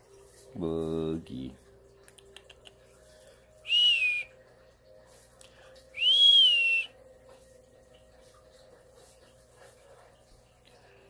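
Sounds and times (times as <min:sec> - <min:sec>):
person whistling: 0:03.6 - 0:04.3, 0:06.0 - 0:07.0.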